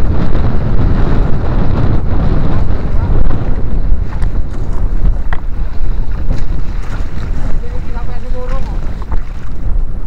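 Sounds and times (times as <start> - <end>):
boat engine running: 0.0 - 10.0
wind buffeting microphone: 0.0 - 10.0
water splashing along hull: 0.2 - 10.0.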